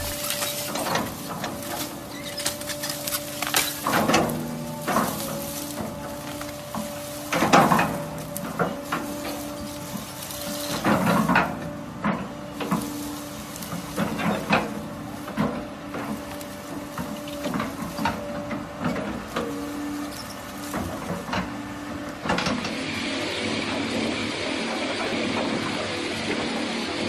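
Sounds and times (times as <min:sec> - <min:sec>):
loud steady rushing noise: 0:00.0 - 0:02.0
branches snapping: 0:00.0 - 0:11.7, 0:12.5 - 0:22.7
dry brush crackling: 0:00.0 - 0:22.7
excavator engine humming: 0:00.0 - 0:27.0.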